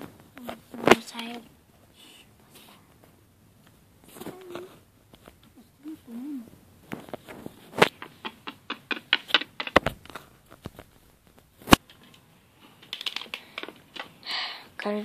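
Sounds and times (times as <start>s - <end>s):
toys clicking on wooden table: 7.9s - 9.8s, 12.8s - 14.1s.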